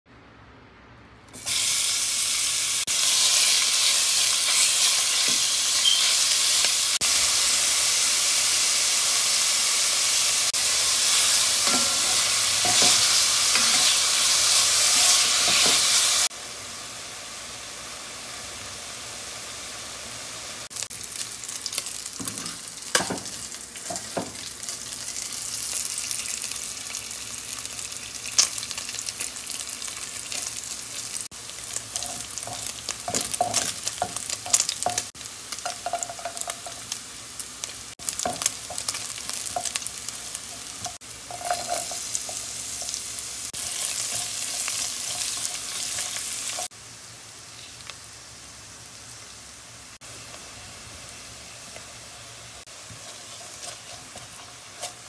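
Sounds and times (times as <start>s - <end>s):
meat sizzling in hot oil: 1.3s - 55.0s
spatula stirring: 52.7s - 55.0s.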